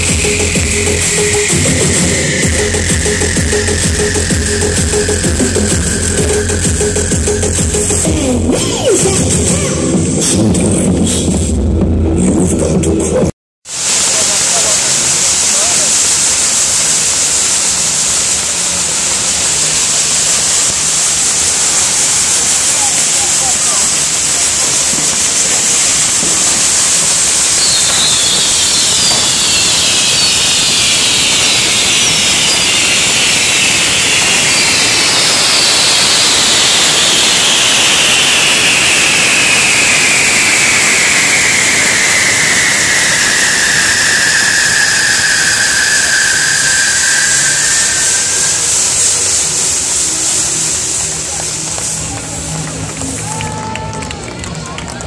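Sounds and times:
descending whistling tones: 0.0s - 8.1s, 14.0s - 52.1s
fireworks hissing: 0.0s - 11.7s, 13.6s - 54.6s.

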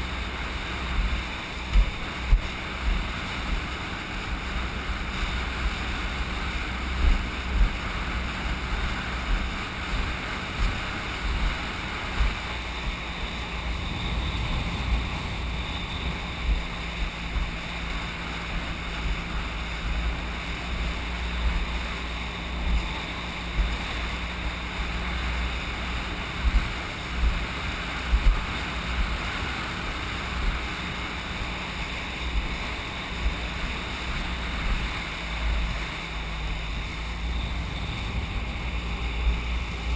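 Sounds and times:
outboard motor humming: 0.0s - 39.9s
wind and water rushing: 0.0s - 39.9s
low thumps: 12.2s - 18.0s.

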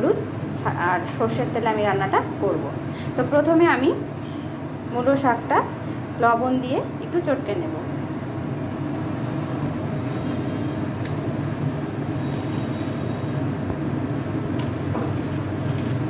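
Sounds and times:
greens rustling kneaded by hand: 9.7s - 16.0s.

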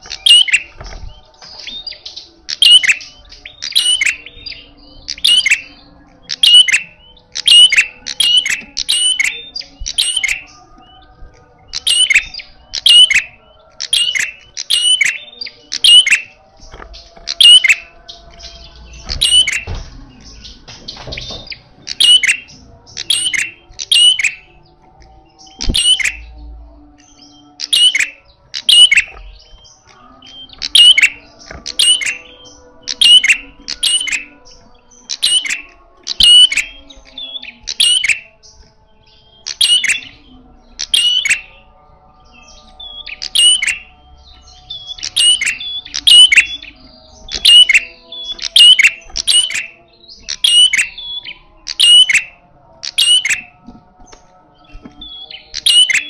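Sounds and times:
bird calling sharp notes: 44.9s - 53.5s.

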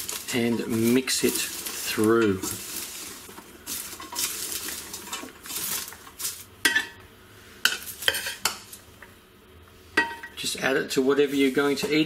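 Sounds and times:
popcorn rustling in a metal pot: 0.0s - 6.7s, 7.6s - 8.9s, 10.4s - 12.0s.

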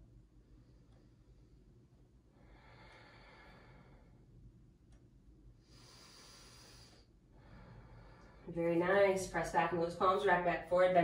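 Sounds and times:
low room hum: 0.0s - 11.0s
person breathing deeply: 2.3s - 4.2s, 5.6s - 8.5s.

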